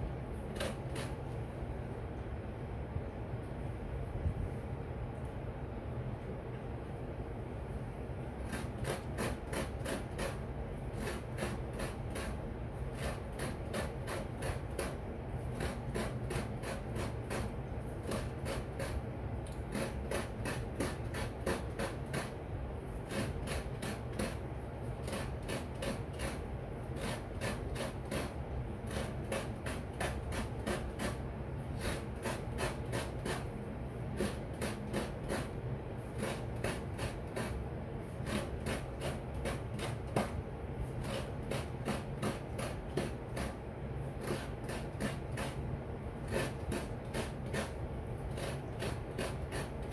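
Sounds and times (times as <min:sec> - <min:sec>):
coconut rasping on grater: 0:00.6 - 0:01.4, 0:08.3 - 0:49.9.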